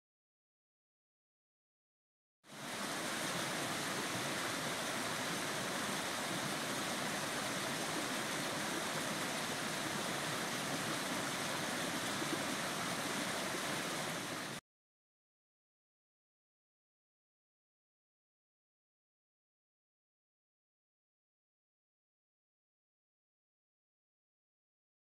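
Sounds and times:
stream rushing over rocks: 0:02.5 - 0:14.6.

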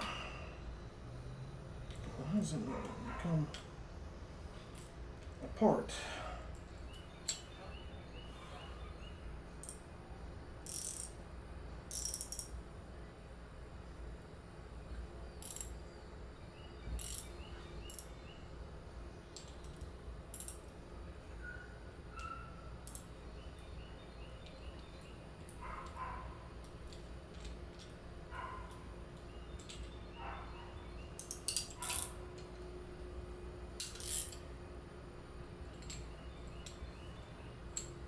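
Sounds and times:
wrench clinking and scraping on metal: 0:10.6 - 0:11.2, 0:11.9 - 0:12.6, 0:17.0 - 0:17.3, 0:19.4 - 0:20.8, 0:24.4 - 0:28.8, 0:29.5 - 0:30.0, 0:31.2 - 0:32.6, 0:33.8 - 0:34.5, 0:35.6 - 0:36.9.

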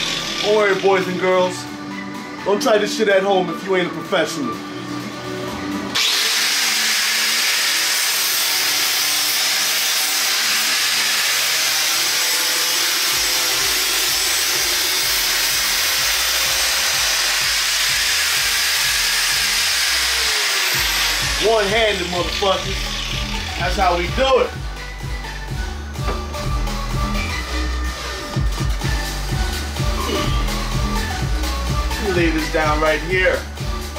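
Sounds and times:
angle grinder cutting cardboard: 0:00.0 - 0:01.5, 0:05.9 - 0:24.6.

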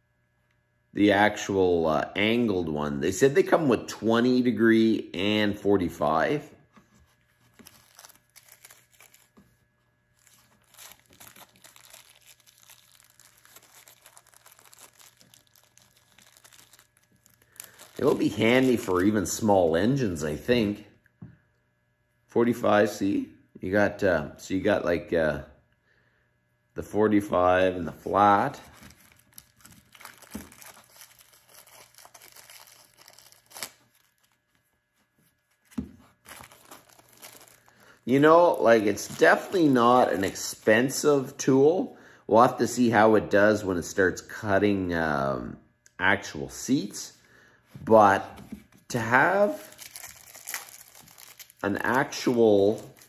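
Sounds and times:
plastic bag crinkling: 0:07.4 - 0:19.4, 0:28.3 - 0:34.6, 0:35.4 - 0:41.3, 0:49.2 - 0:53.0.

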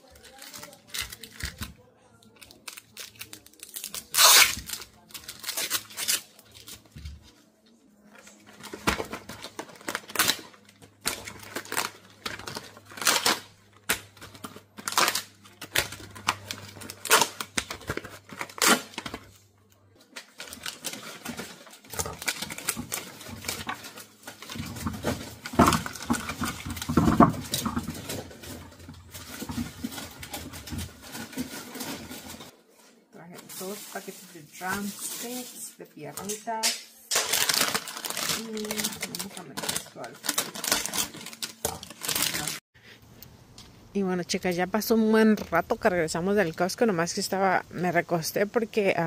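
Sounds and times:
plastic packaging crinkling: 0:00.0 - 0:07.2, 0:08.2 - 0:32.5, 0:37.1 - 0:42.7
groceries knocking when set down: 0:24.6 - 0:32.4.

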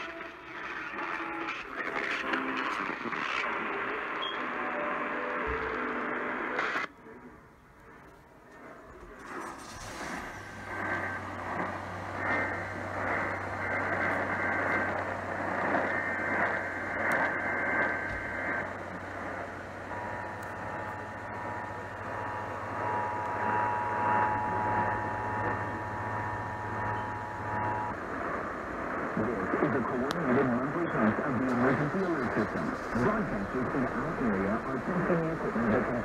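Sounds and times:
low hum: 0:00.0 - 0:36.0
radio static: 0:00.0 - 0:36.0
high-pitched data bursts: 0:09.6 - 0:28.0.

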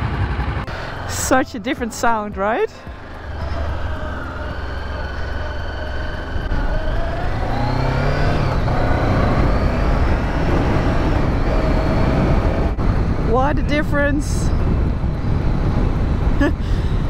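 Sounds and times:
motorcycle engine pulling away: 0:02.4 - 0:13.4.

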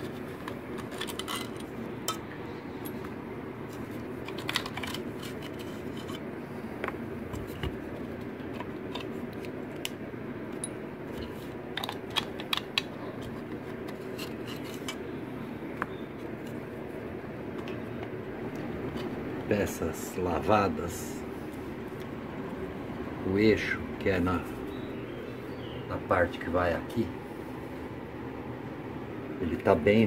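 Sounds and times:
low background hum: 0:00.0 - 0:30.0
metal bolts clicking and tapping: 0:10.5 - 0:10.8.

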